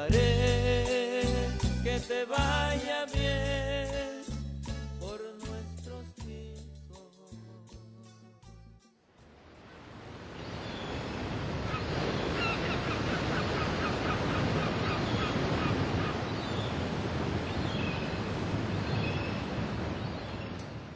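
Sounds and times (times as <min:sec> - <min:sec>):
ocean surf washing on beach: 0:09.6 - 0:20.9
birds calling: 0:11.7 - 0:16.8.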